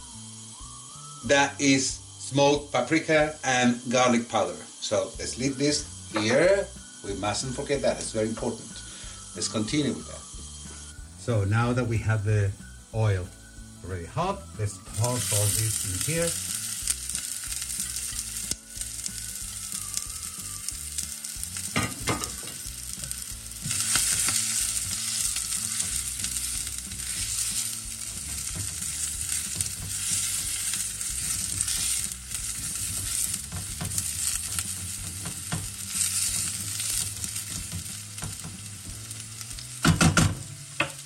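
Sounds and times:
onion and pepper sizzling in oil: 0.0 - 41.0
spatula stirring in saucepan: 22.6 - 39.2.

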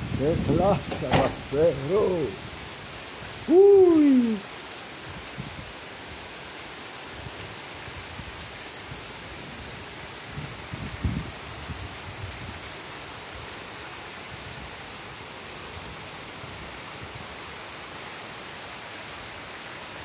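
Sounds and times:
torrential rain hiss: 0.0 - 20.0.

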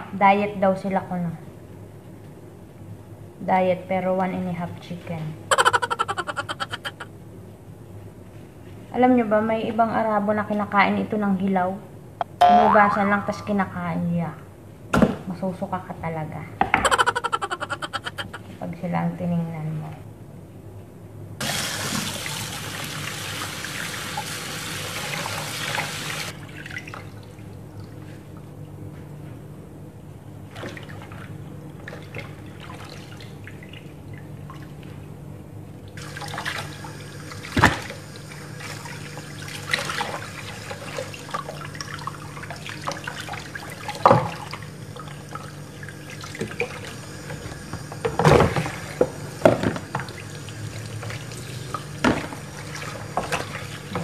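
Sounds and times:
tap water running into basin: 21.4 - 27.2, 36.0 - 54.0.

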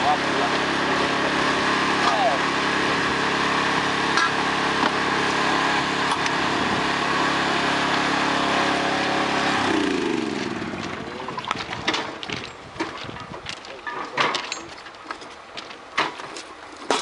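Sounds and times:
small engine running: 0.0 - 11.1.

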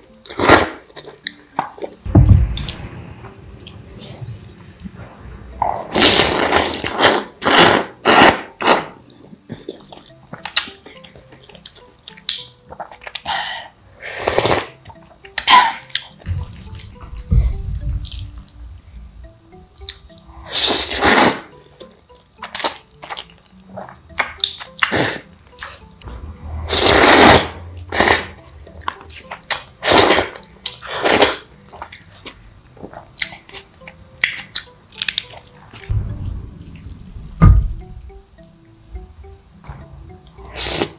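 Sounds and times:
chewing: 0.4 - 2.0, 8.6 - 13.3, 21.8 - 25.8
utensil sounds: 1.8 - 9.0, 14.1 - 32.4, 33.2 - 40.9
noodle slurping: 5.9 - 9.0, 14.1 - 14.8, 20.4 - 21.5, 26.7 - 28.4, 29.5 - 31.5.

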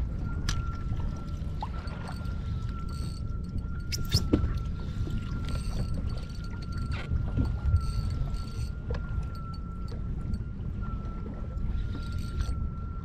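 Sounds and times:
sea water rumbling around hull: 0.0 - 13.0
thin steady high tone: 0.0 - 13.0.

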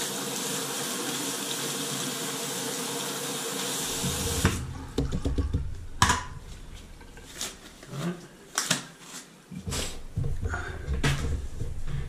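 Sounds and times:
faucet water splashing into basin: 0.0 - 5.3
clicks and knocks at drain: 5.0 - 6.3, 10.1 - 12.0.

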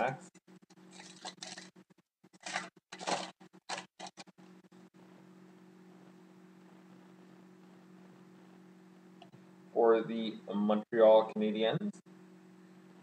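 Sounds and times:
foil pack tearing and crinkling: 0.9 - 4.3
low hum: 2.4 - 13.0.

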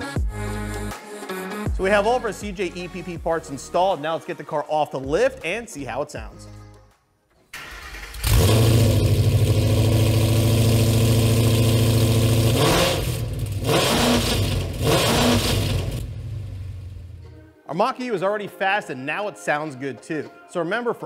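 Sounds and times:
engine starting and idling: 7.5 - 17.1.

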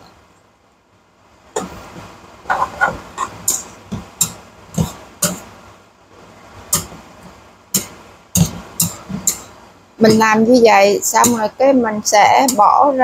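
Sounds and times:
faint steady hiss: 0.0 - 13.0
spatula clacking against a wok: 2.8 - 5.5, 6.7 - 7.0, 7.8 - 10.3, 11.2 - 11.5, 12.4 - 12.7.

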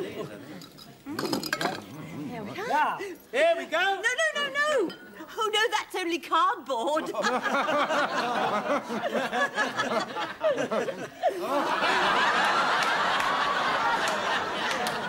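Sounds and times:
audience laughing: 7.0 - 15.0.

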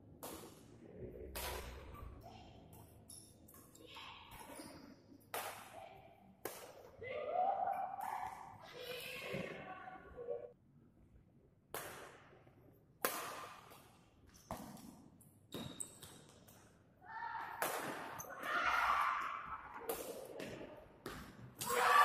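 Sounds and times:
rackets hitting shuttlecock: 0.2 - 0.7, 1.3 - 2.0, 5.2 - 5.8, 13.0 - 16.7, 17.5 - 18.4, 19.5 - 21.8.

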